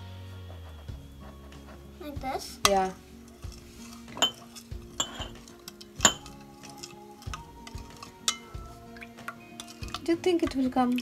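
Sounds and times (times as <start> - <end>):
soft background music: 0.0 - 11.0
dishes clinking: 2.6 - 8.6.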